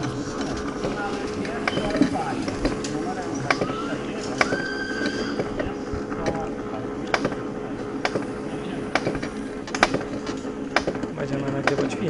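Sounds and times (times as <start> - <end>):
steady mechanical hum: 0.0 - 12.0
sharp mechanical clicks: 4.3 - 12.0.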